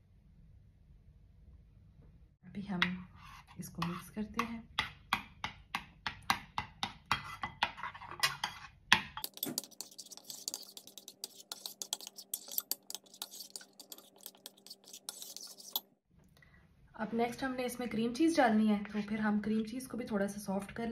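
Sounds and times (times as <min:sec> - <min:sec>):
metal spoon scraping ceramic bowl: 0:02.8 - 0:05.2, 0:06.6 - 0:15.9.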